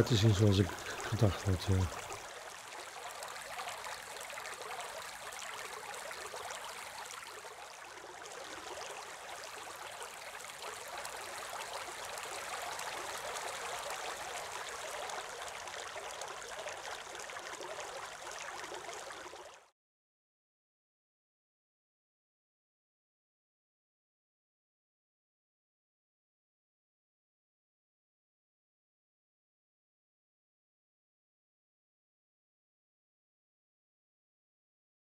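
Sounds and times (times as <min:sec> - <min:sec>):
fountain water splashing into pond: 0:00.0 - 0:19.7.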